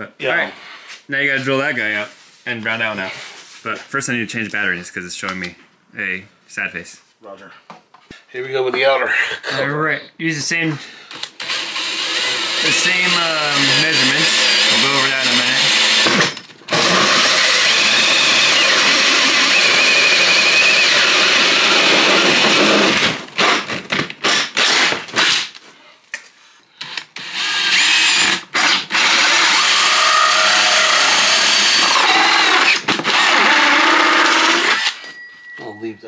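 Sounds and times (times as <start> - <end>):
drill with hole saw cutting plastic: 11.2 - 25.6, 26.8 - 35.0.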